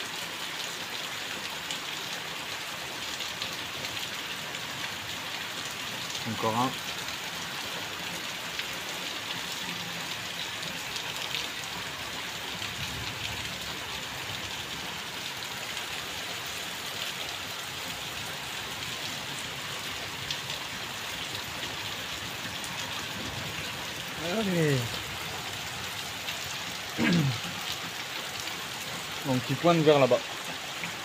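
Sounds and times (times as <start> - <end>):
rain falling: 0.0 - 31.0.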